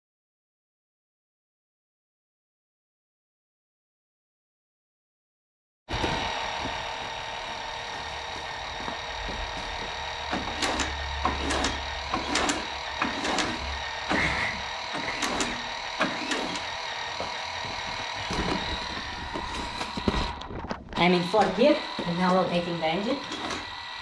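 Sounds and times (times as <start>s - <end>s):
faint steady whine: 5.9s - 24.0s
engine mechanical clicks and clacks: 6.0s - 22.2s.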